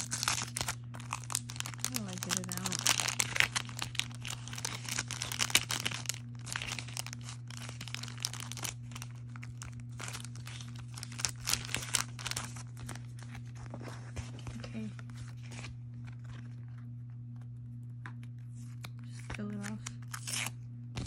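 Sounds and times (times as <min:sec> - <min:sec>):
tape ripping: 0:00.0 - 0:13.0, 0:19.6 - 0:20.6
plastic sleeve crinkling: 0:00.0 - 0:17.2.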